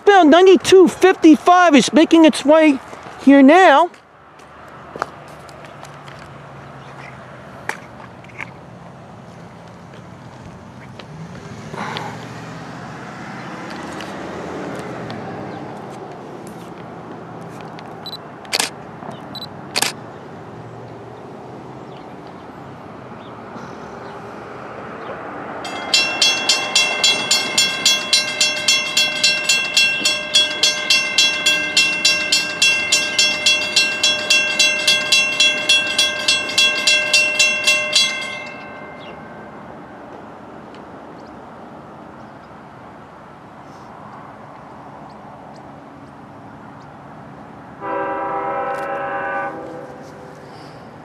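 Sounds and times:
railroad crossing bell ringing: 25.6s - 40.2s, 47.8s - 50.3s.

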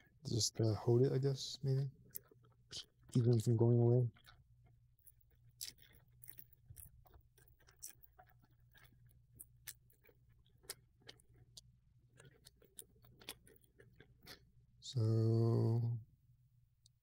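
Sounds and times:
small clicks and crackles: 1.6s - 14.4s.

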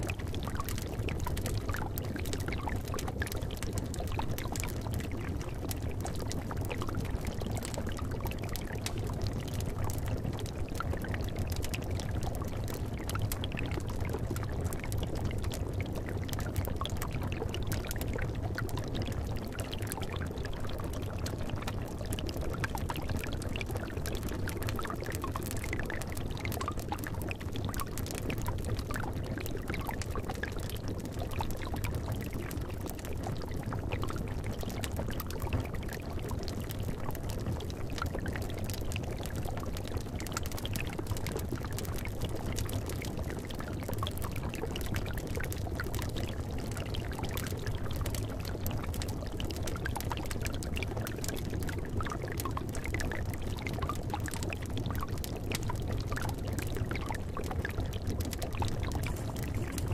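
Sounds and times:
liquid bubbling in a cauldron: 0.0s - 59.9s
fire crackling: 55.4s - 59.9s
low steady rumble: 58.8s - 59.9s.

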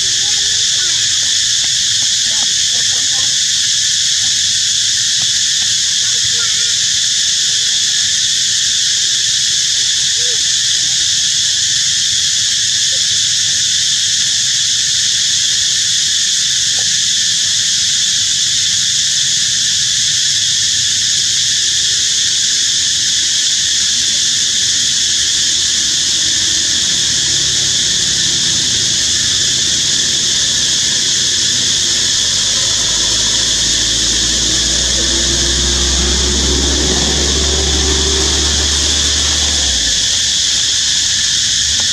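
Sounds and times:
insect chorus drone: 0.0s - 41.9s
low engine rumble: 24.1s - 40.9s.

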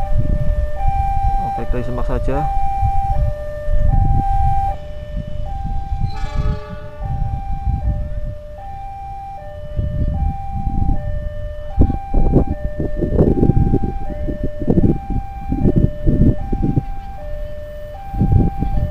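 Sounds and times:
level-crossing two-tone alarm: 0.0s - 18.9s
low rumbling noise: 5.1s - 11.2s.

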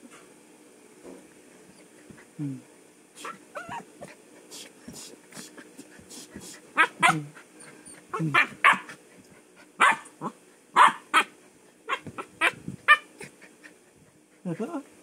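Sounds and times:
dog barking and yipping: 3.2s - 3.9s, 6.8s - 7.3s, 8.1s - 9.0s, 9.8s - 11.3s, 11.9s - 13.2s.

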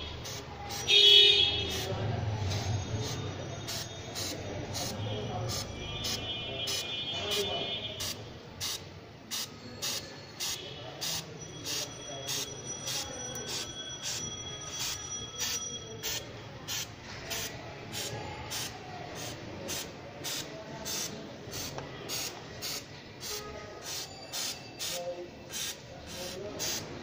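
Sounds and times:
chain squealing: 9.5s - 16.2s, 24.0s - 25.1s
aerosol spray hissing: 16.1s - 26.8s.

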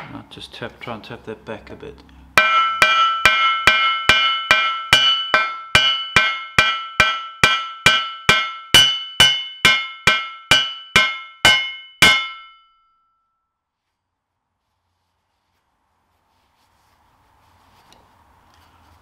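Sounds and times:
hammer tapping on metal: 2.4s - 12.6s.

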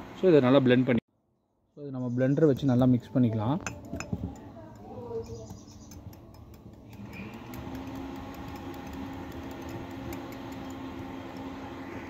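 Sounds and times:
whisk ticking against glass: 3.6s - 11.6s
electric whisk motor whirring: 5.9s - 12.0s.

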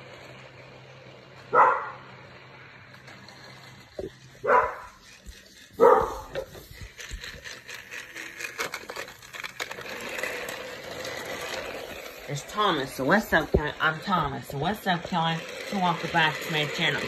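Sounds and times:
dog barking: 1.5s - 2.0s, 4.4s - 5.0s, 5.8s - 6.5s
plastic toy clicking and rattling: 2.8s - 17.0s.

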